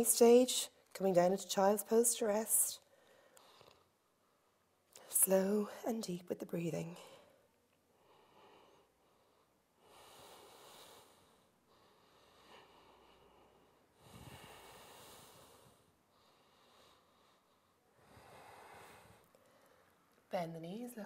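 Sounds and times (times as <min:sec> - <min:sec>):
deep breathing through nose: 0:08.0 - 0:20.0.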